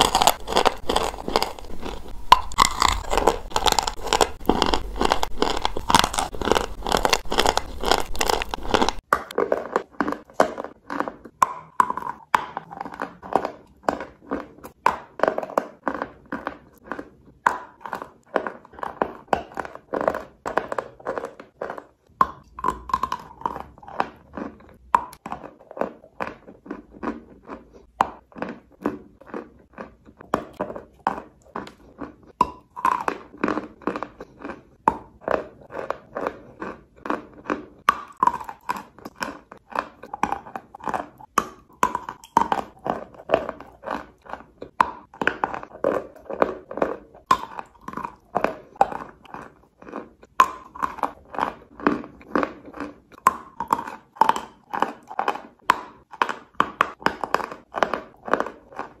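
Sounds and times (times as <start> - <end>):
chalk being chewed: 0.0 - 59.0.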